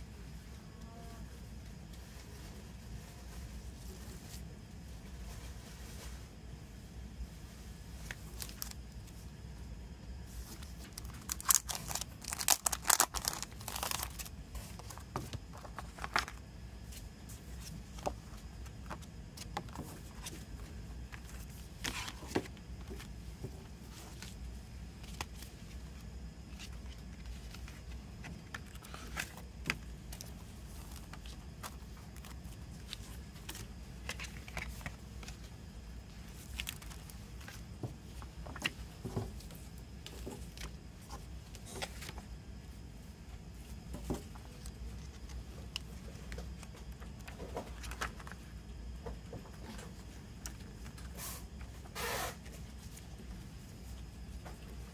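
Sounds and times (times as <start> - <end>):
steady low hum: 0.0 - 54.9
cardboard and paper rustling: 8.0 - 9.2, 10.3 - 42.3, 43.6 - 48.6.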